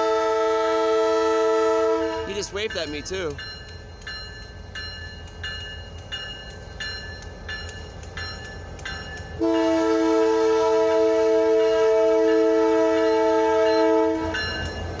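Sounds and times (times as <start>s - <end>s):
train air horn chord: 0.0s - 2.4s, 9.4s - 14.5s
diesel locomotive rumble: 0.0s - 15.0s
crossing bell ringing: 2.1s - 10.2s, 11.4s - 15.0s.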